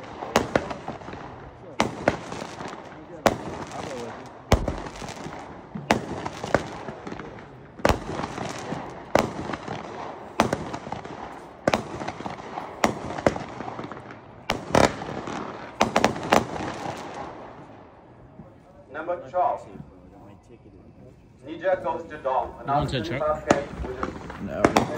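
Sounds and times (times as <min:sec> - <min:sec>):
firework crackling: 0:00.0 - 0:17.8, 0:23.2 - 0:24.9
firework reports: 0:00.0 - 0:24.9.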